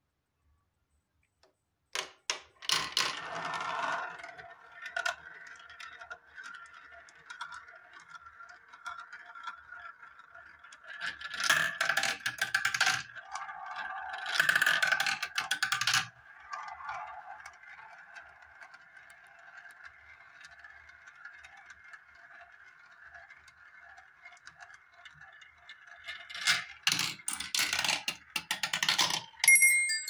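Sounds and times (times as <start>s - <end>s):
marbles rattling around a plastic funnel: 10.8s - 16.2s.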